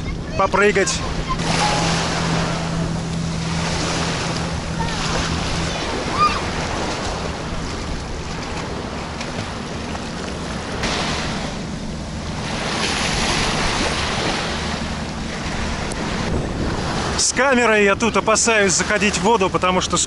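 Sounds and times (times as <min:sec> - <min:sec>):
low steady hum: 0:00.0 - 0:17.2
wind buffeting microphone: 0:00.0 - 0:18.3
waves splashing at shore: 0:00.0 - 0:20.0.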